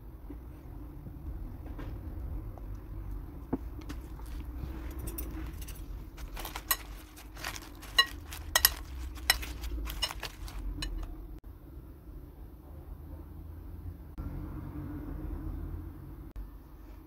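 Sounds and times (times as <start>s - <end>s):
fork clinking on glass bowl: 5.0s - 11.1s.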